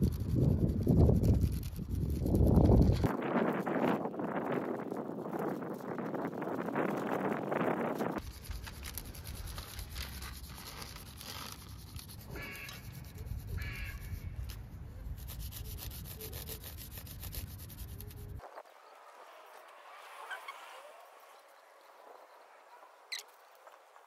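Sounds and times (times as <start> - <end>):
crayon scratching on paper: 0.0 - 18.4
wind noise on microphone: 0.0 - 18.7.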